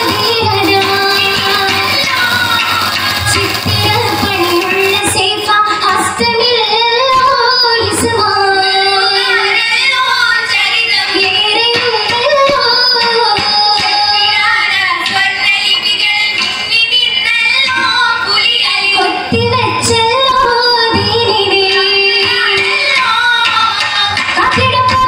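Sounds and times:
musical accompaniment: 0.0 - 7.8
woman singing: 0.0 - 25.0.

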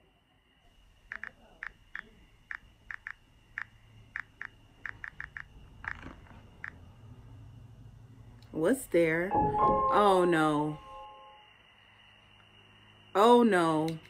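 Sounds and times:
faint high tone: 9.2 - 11.6.

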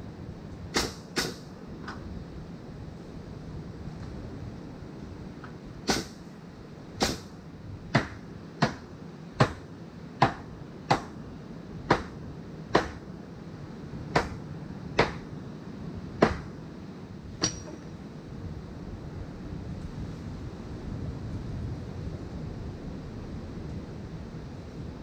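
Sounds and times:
hammer driving nails into wood: 5.9 - 6.2, 12.7 - 13.0, 16.2 - 16.5.

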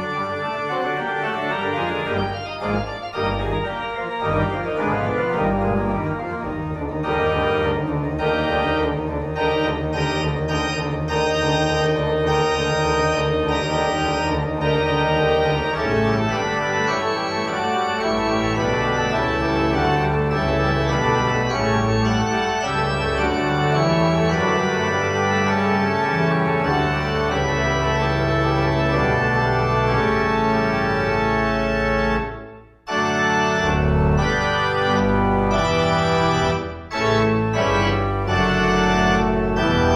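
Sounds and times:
organ playing slow chords: 0.0 - 39.9.

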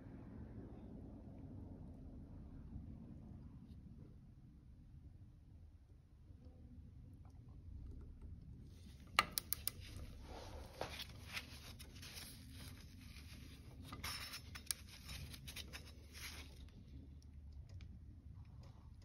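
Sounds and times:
glove rustling and scraping: 9.8 - 16.8.

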